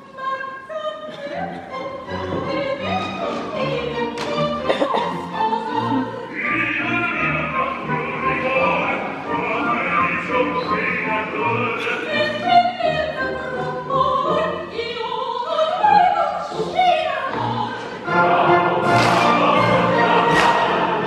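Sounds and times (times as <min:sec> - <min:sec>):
chorus singing: 0:00.0 - 0:21.0
orchestra playing: 0:02.0 - 0:14.9, 0:16.4 - 0:21.0
man singing opera: 0:06.3 - 0:12.3.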